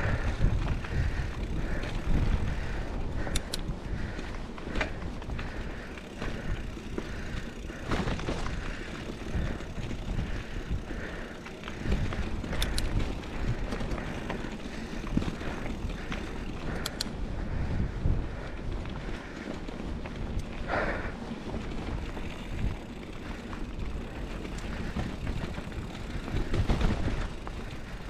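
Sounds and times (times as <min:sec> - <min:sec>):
bike rattling: 0:00.0 - 0:28.0
bike tires crunching over dirt: 0:00.0 - 0:28.0
wind rumble on microphone: 0:00.0 - 0:28.0
sharp clicks: 0:03.2 - 0:03.7, 0:11.7 - 0:14.0, 0:16.0 - 0:17.2.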